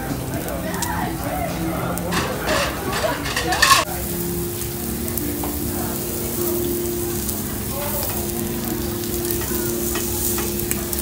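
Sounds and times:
steak sizzling on grill: 0.0s - 11.0s
metal tongs clicking: 2.1s - 3.9s.

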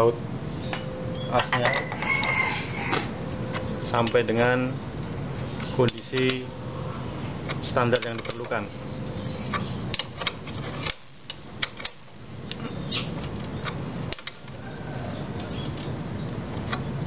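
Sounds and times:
steady low hum: 0.0s - 17.0s
spanner clicking on axle nut: 5.6s - 6.5s, 7.5s - 8.7s.

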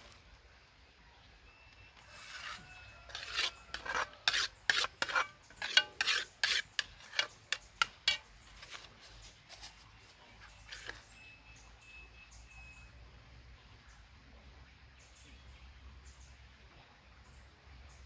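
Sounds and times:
metal spoon scraping frying pan: 2.1s - 8.9s, 10.4s - 11.2s.

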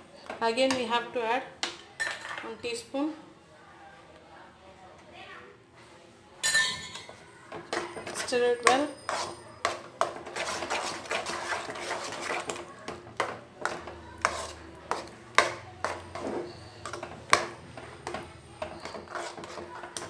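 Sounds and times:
metal spoon scraping a pan: 6.5s - 20.0s.

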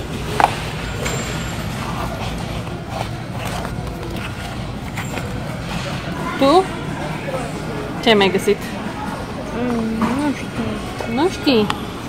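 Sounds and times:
faint distant voices: 0.0s - 12.0s
shop background hum: 0.0s - 12.0s.

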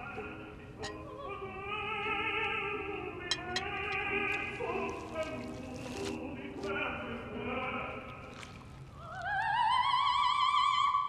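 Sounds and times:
operatic singing with orchestra: 0.0s - 8.3s.

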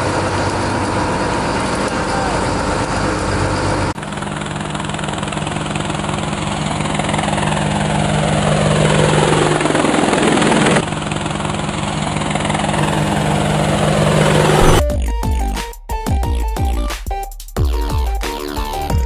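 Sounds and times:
drone propellers whirring: 1.4s - 14.9s
descending whoosh: 12.7s - 14.9s.

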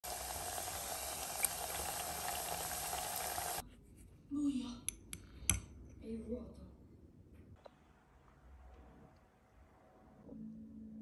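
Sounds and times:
liquid bubbling in a pot: 0.0s - 3.6s.

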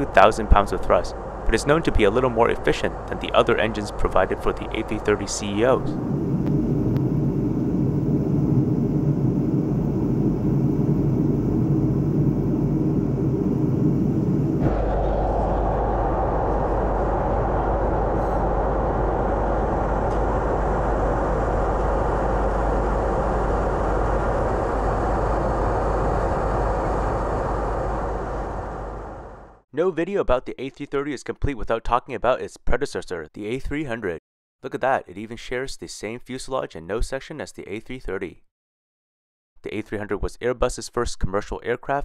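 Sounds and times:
airliner cabin engine drone: 0.0s - 29.6s.

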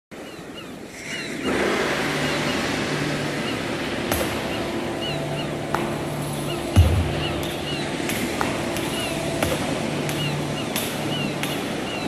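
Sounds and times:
ocean surf washing: 0.2s - 12.0s
high bird chirps: 4.3s - 9.3s.

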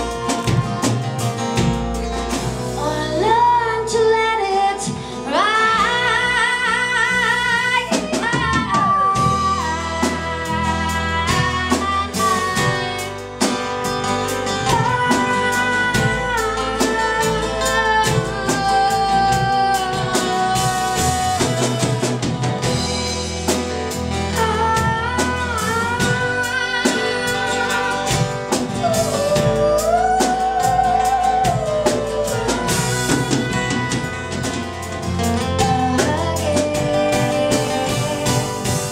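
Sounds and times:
drum kit: 0.0s - 38.9s
woman singing with vibrato: 2.7s - 23.0s, 24.1s - 38.9s
strummed acoustic guitar: 8.0s - 38.9s.

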